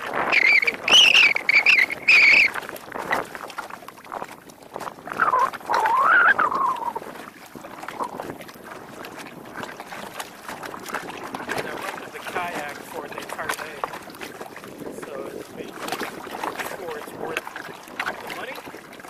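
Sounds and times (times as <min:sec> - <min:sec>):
low wavering animal call: 0:00.2 - 0:02.6, 0:05.1 - 0:07.1
high pitched animal cries: 0:00.3 - 0:02.5, 0:05.2 - 0:07.0.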